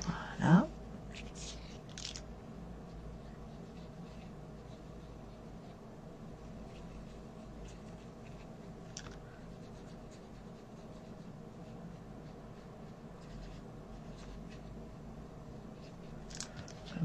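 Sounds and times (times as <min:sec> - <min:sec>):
steady low hum: 0:00.0 - 0:17.0
brush pen scratching on card: 0:03.4 - 0:05.8, 0:06.4 - 0:17.0.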